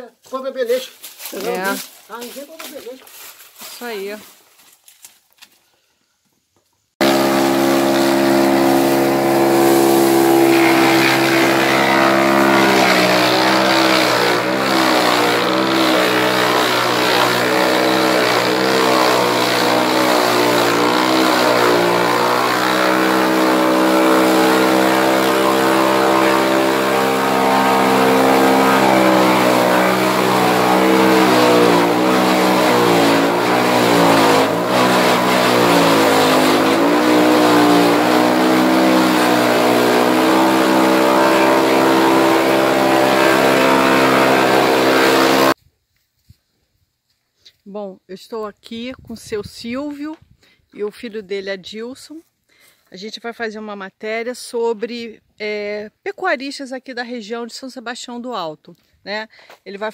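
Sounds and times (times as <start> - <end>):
forage chopper machine hum: 7.0 - 45.6.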